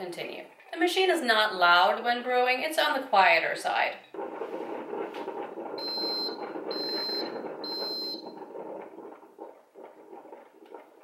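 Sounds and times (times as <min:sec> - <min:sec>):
coffee maker brewing noise: 0:04.0 - 0:11.0
crackles: 0:04.0 - 0:11.0
high beeps: 0:05.8 - 0:08.3.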